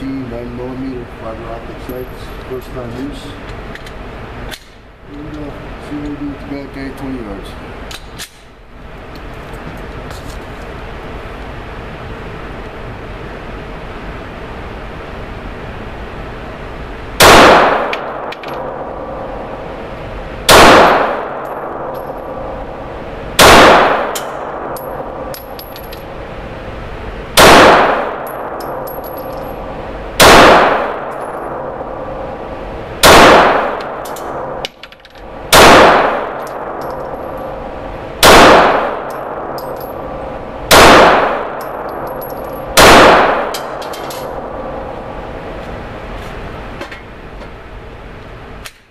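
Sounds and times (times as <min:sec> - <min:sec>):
pistol shots echoing: 0:17.2 - 0:19.2, 0:20.5 - 0:22.5, 0:23.4 - 0:25.6, 0:27.4 - 0:29.5, 0:30.2 - 0:31.9, 0:33.0 - 0:34.8, 0:35.5 - 0:37.6, 0:38.2 - 0:44.8.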